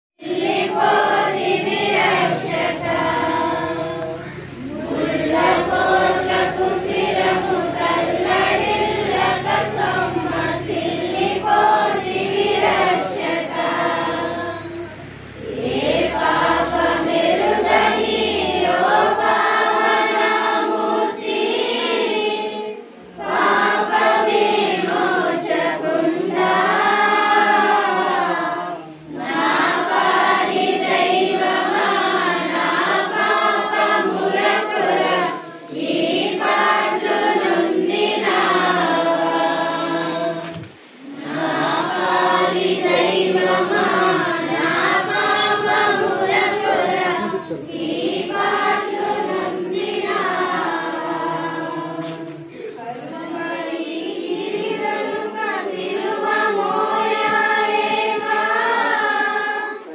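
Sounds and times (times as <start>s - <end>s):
low steady drone: 0.2s - 20.7s
congregation singing a hymn: 0.2s - 59.9s.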